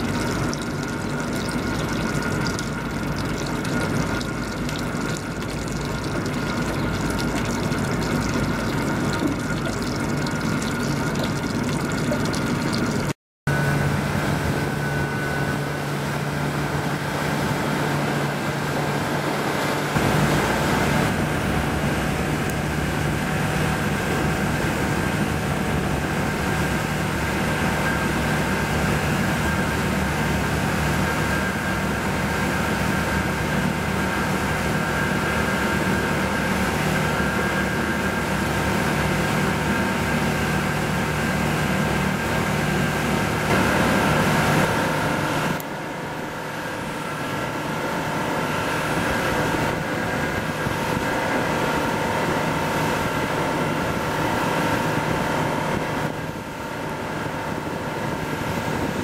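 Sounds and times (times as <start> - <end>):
boat diesel engine drone: 0.0 - 59.0
rushing water: 0.0 - 59.0
wind noise: 49.0 - 59.0.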